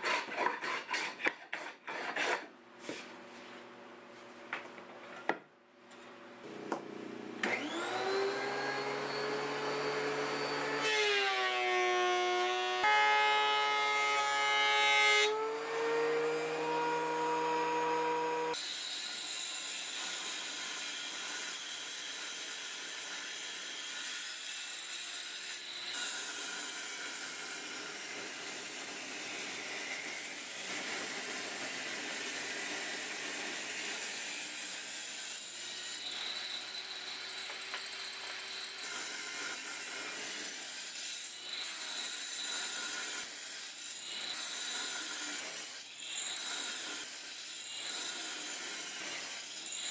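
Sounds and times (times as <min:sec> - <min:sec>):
saw blade cutting wood: 0:00.0 - 0:03.0, 0:06.5 - 0:49.9
table saw motor running: 0:06.5 - 0:14.4, 0:15.3 - 0:18.6.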